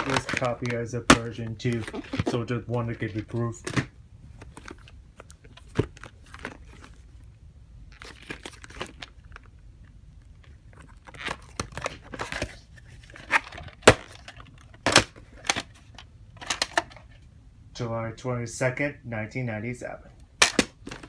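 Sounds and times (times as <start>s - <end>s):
plastic case rustling: 0.0s - 7.2s, 7.9s - 9.6s, 10.2s - 17.3s, 20.4s - 21.0s.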